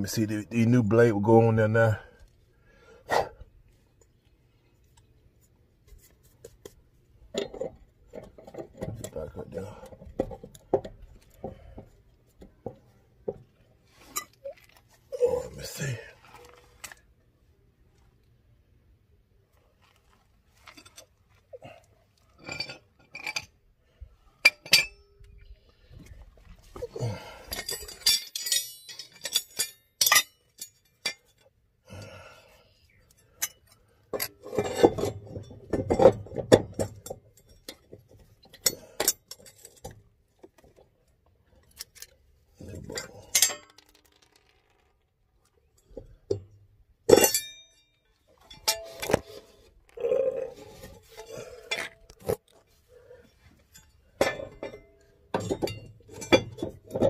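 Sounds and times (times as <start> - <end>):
metallic clinks of hand tools: 27.5 - 31.4
rattling handling noise: 53.5 - 57.0.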